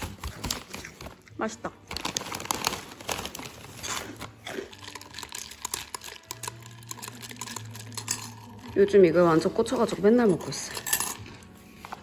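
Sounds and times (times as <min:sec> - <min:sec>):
foil snack bag crinkling: 0:00.0 - 0:11.4.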